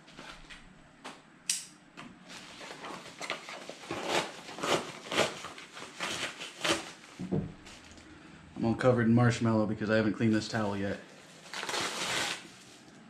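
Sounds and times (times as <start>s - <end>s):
knife slitting plastic bag: 2.3s - 7.9s, 11.1s - 12.8s
plastic bag crinkling: 10.8s - 13.0s.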